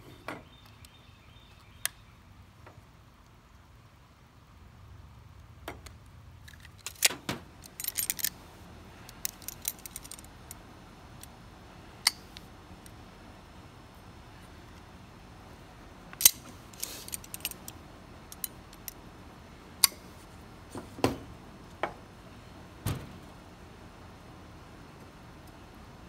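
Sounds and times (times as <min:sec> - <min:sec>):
locking pliers on sheet metal: 0:06.5 - 0:08.3.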